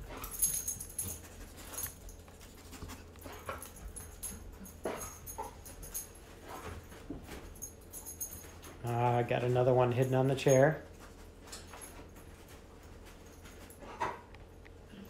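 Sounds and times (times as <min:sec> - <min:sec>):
dog sniffing and panting: 0:00.0 - 0:08.7
light metallic jingling: 0:00.0 - 0:13.8.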